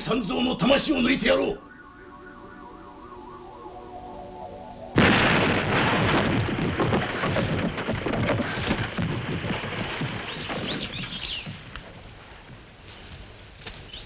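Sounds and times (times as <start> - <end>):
birds chirping: 0.0 - 5.0, 7.1 - 11.8
thunder-like crash with rumble: 5.0 - 11.6.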